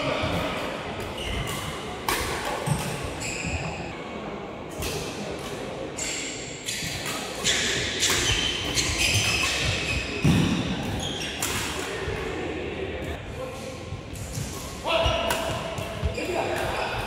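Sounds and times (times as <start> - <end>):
rackets striking shuttlecock: 6.8 - 11.9.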